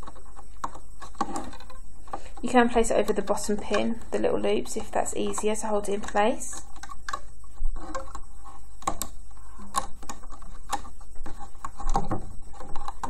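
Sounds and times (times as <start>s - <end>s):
clicks of loom bands on pins: 0.0s - 7.2s.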